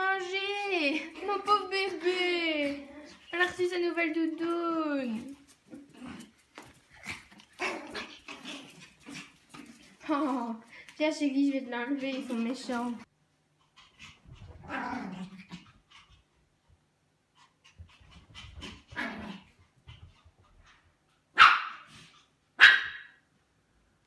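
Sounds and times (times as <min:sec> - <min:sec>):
dogs barking sharply: 0:21.3 - 0:22.0, 0:22.6 - 0:23.2.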